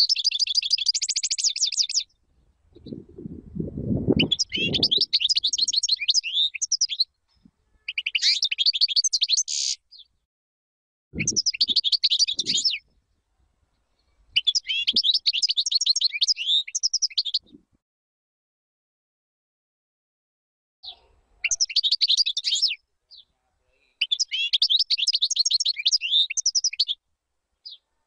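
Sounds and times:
goldfinch twittering song: 0.0 - 2.2, 4.2 - 10.1, 11.2 - 12.9, 14.0 - 17.6, 20.8 - 23.3, 24.0 - 27.0.

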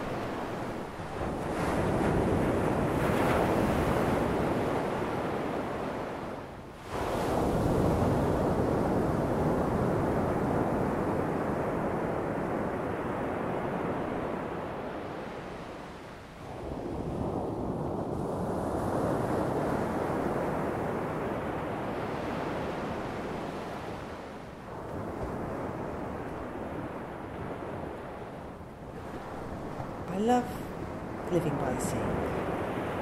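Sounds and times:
waves washing over sand: 0.0 - 33.0
wind on microphone: 0.0 - 33.0.

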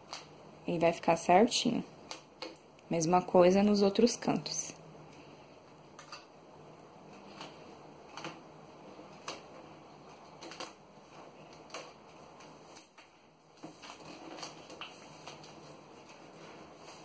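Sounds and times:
contact paper crinkling: 9.0 - 17.0.

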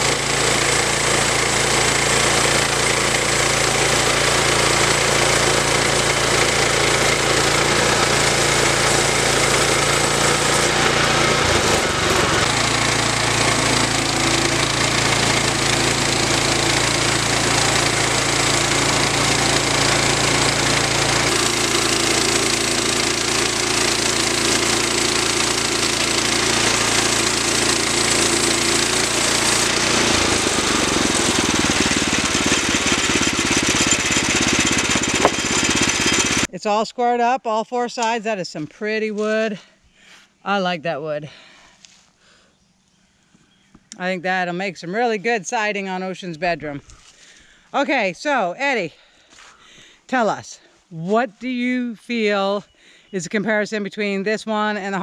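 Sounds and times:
sawmill gasoline engine running: 0.0 - 36.6.

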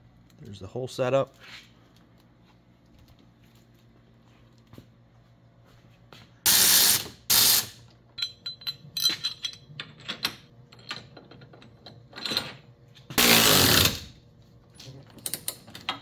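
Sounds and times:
electric ratchet spinning: 6.5 - 7.8, 13.2 - 14.2
metal parts clicking and knocking: 8.1 - 13.6, 14.7 - 16.0.

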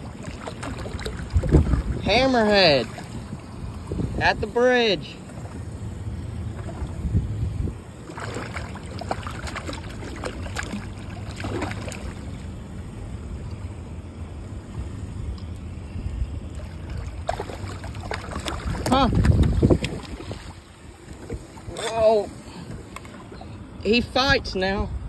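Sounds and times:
shark splashing against boat: 0.0 - 3.6, 8.0 - 12.4, 16.6 - 22.0
water around boat: 0.0 - 25.0
wind: 0.0 - 25.0.

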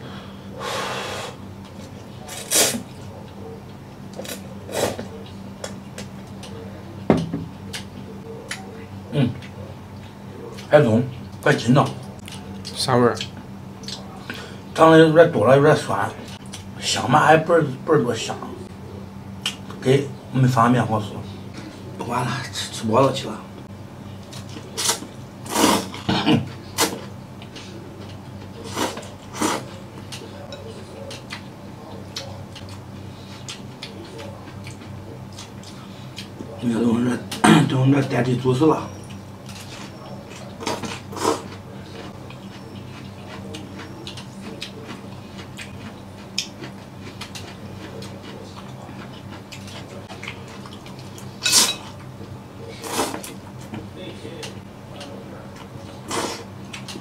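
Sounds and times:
low steady hum: 0.0 - 57.0
person slurping noodles: 24.8 - 26.0
man slurping noodles: 25.5 - 26.0.

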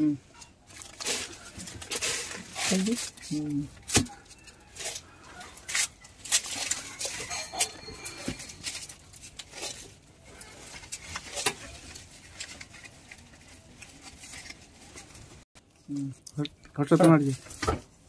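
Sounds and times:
dry leaves crackling and rustling: 0.7 - 4.9.

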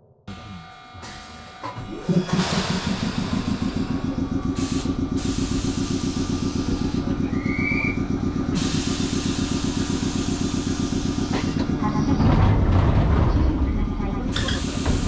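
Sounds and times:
train machinery throbbing: 0.3 - 15.0
short high rising whistle: 7.4 - 8.0.

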